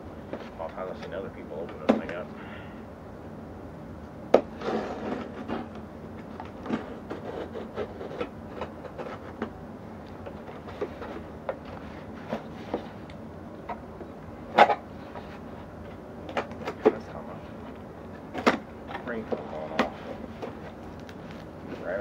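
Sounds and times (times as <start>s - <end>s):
packing tape crinkling: 20.7s - 21.5s.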